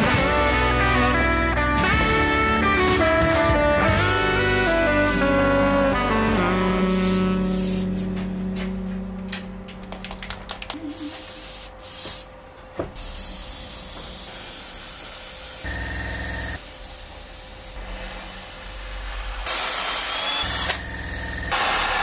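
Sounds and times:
airbrush spraying hiss: 0.3 - 1.2, 2.7 - 5.3, 6.9 - 8.1, 10.8 - 12.3, 13.0 - 15.7.

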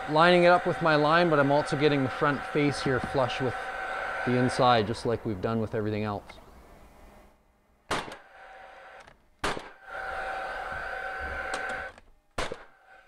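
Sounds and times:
nailer fan whirring: 0.0 - 7.2, 8.2 - 12.1
nail gun shots: 7.9 - 8.3, 9.0 - 9.9, 11.5 - 12.8.

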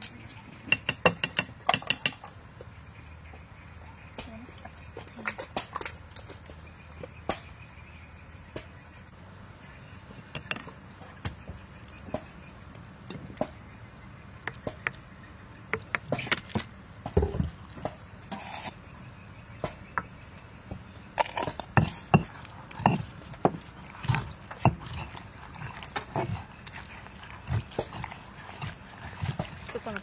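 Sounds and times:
pestle pounding in stone mortar: 0.7 - 2.3, 19.6 - 30.0.

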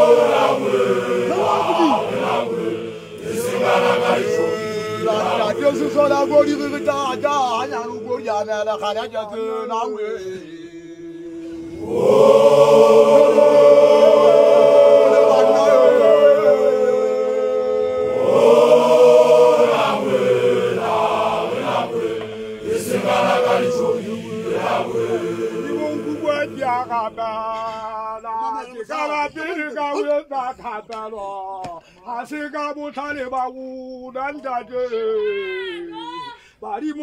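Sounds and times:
group of voices chanting: 0.0 - 27.9.

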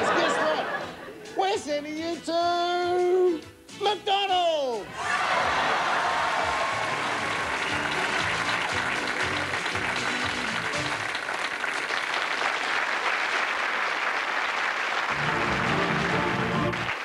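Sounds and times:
audience applauding: 5.0 - 17.0
bass line: 6.4 - 11.0, 15.1 - 16.8
game-show music: 6.4 - 11.2, 15.1 - 17.0.

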